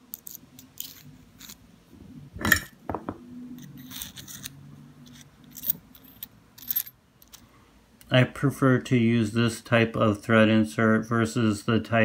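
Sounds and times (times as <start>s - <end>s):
light metal scraping: 3.5s - 7.4s.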